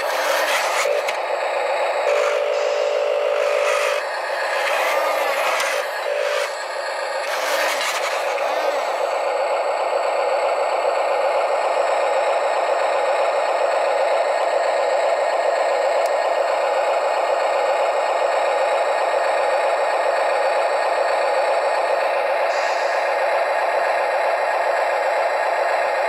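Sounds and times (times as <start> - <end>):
toy motor and gears rattling: 0.0 - 9.2.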